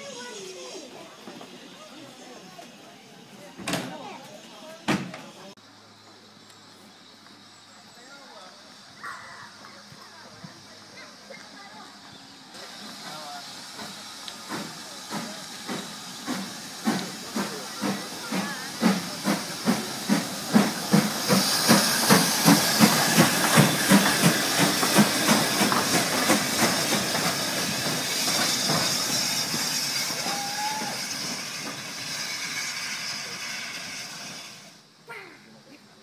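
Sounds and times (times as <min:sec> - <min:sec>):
steam hissing: 0:00.0 - 0:35.0
steam locomotive exhaust chuffs: 0:09.6 - 0:35.0.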